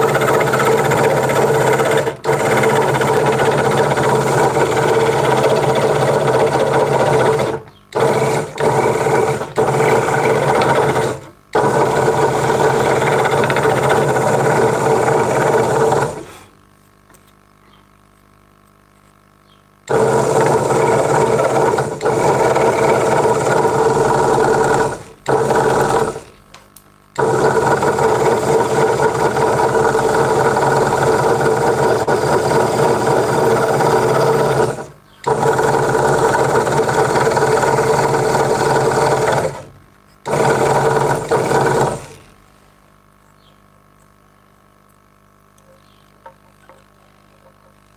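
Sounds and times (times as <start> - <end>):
scroll saw cutting wood: 0.0 - 16.5, 19.9 - 26.3, 27.2 - 42.3.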